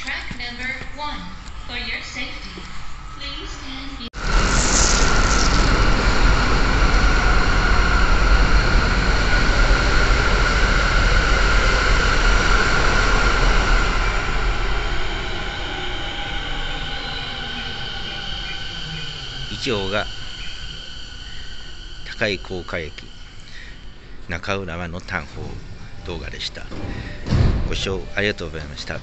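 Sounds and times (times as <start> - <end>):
electric train rumble with whine: 0.0 - 29.0.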